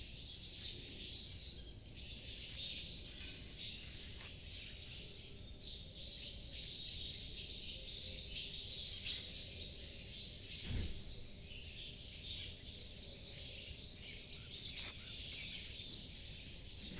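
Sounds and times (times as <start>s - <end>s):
small birds chirping: 0.0s - 16.9s
low thump: 10.6s - 11.2s.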